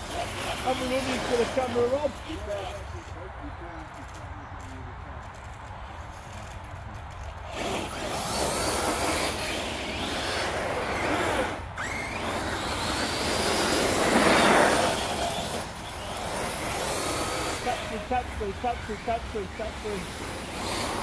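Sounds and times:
electric motor whine: 0.0s - 3.0s, 7.3s - 21.0s
tyres on gravel: 0.0s - 21.0s.

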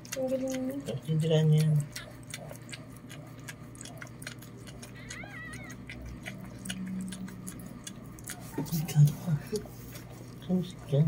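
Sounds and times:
puppies nursing clicks: 0.0s - 10.6s
puppy squeaking: 4.7s - 6.0s.

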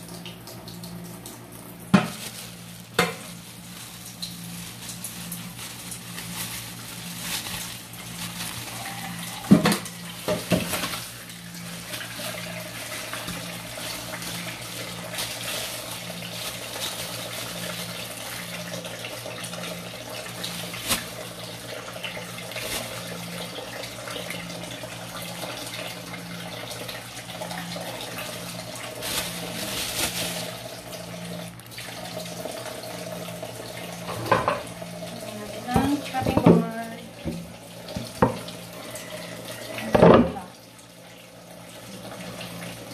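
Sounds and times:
water running into a steel sink: 0.0s - 42.9s
plastic bag splashing and knocking: 1.9s - 17.9s, 20.7s - 21.2s, 22.5s - 23.0s, 28.2s - 30.7s, 35.6s - 38.5s, 39.8s - 40.5s.

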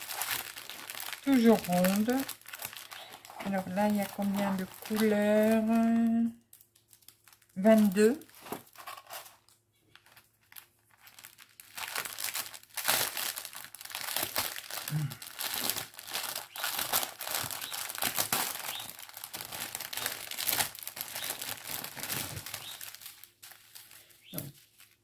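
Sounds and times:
plastic packaging crinkling: 0.0s - 25.0s.

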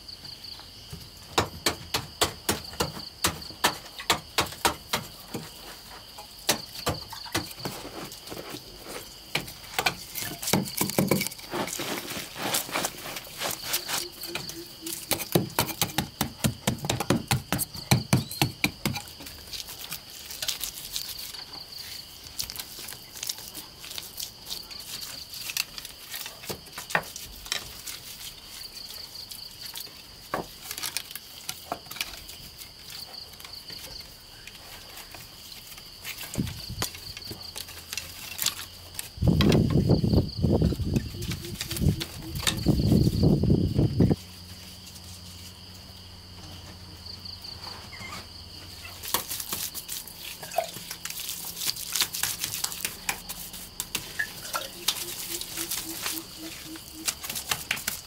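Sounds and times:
high insect trill: 0.0s - 58.0s
hand tool chopping earth: 1.3s - 8.3s, 9.1s - 21.6s, 49.0s - 58.0s.

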